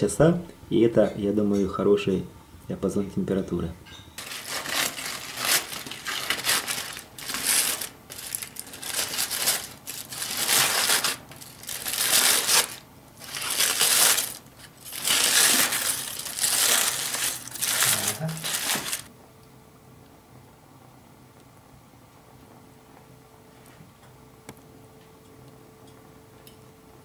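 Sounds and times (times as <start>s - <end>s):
aluminium foil crinkling: 4.2s - 19.1s.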